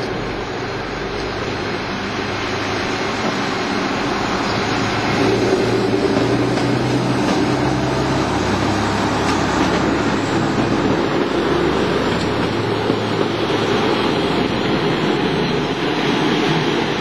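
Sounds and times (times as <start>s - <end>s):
diesel railcar engine drone: 0.0s - 17.0s
rail rumble: 0.0s - 17.0s.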